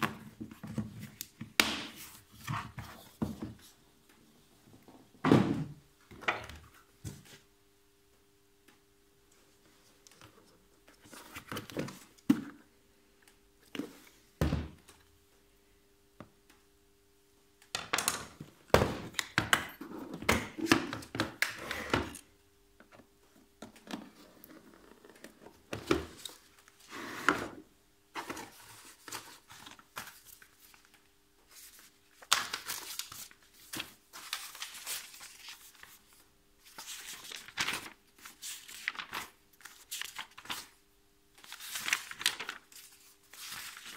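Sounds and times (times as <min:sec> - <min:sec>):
paper and plastic rustling: 0:09.7 - 0:12.6, 0:28.1 - 0:40.8, 0:41.4 - 0:43.9.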